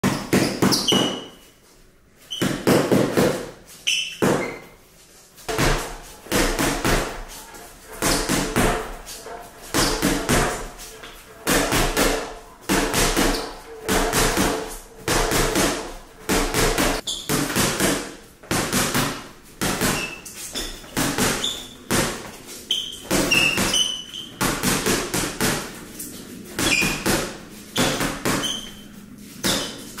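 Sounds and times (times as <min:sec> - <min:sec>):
short high squeaks: 0:00.4 - 0:01.6, 0:03.8 - 0:04.8, 0:20.0 - 0:21.8, 0:27.8 - 0:29.9
gloves hitting punching bag: 0:02.4 - 0:03.6, 0:05.5 - 0:25.8, 0:26.6 - 0:30.0.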